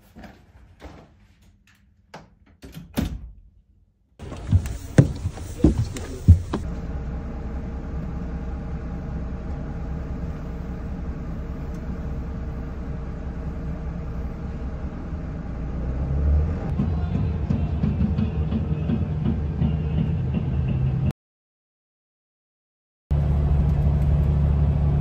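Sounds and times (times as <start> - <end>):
footsteps boarding: 4.2 - 6.7
bus engine rumbling: 4.2 - 21.1, 23.1 - 25.0.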